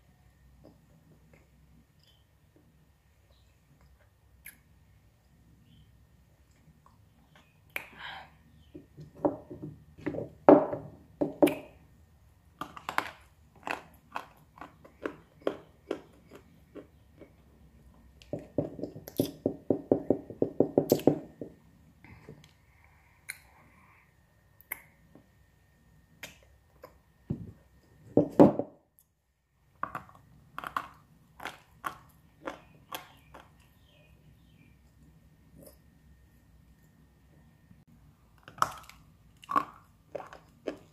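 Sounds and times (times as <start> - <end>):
chewing clay crunches: 12.6 - 17.5, 29.8 - 33.9, 38.3 - 40.9.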